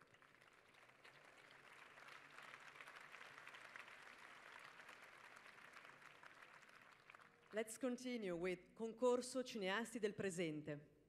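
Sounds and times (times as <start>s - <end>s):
audience applause: 0.0s - 7.5s.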